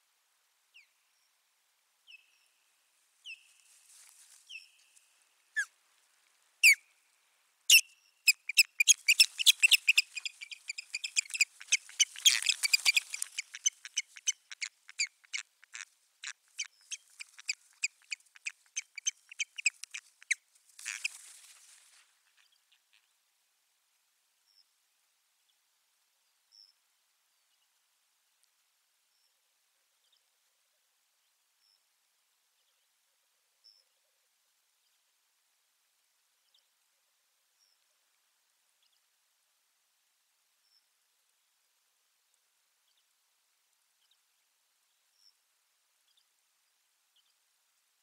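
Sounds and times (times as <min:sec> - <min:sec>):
osprey calling: 0:07.7 - 0:21.4.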